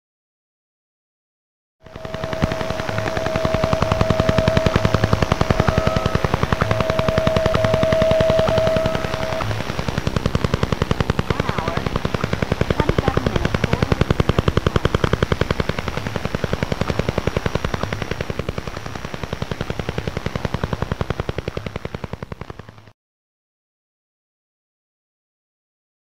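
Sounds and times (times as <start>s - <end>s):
steady tone: 1.8s - 22.0s
rapid radio ticking: 1.9s - 22.9s.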